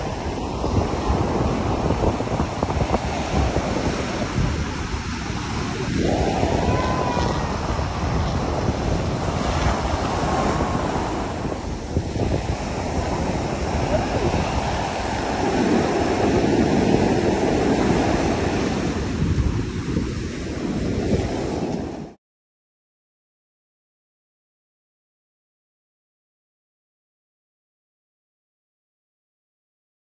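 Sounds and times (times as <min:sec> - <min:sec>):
ocean surf breaking: 0:00.0 - 0:22.2
wind buffeting microphone: 0:00.0 - 0:22.2.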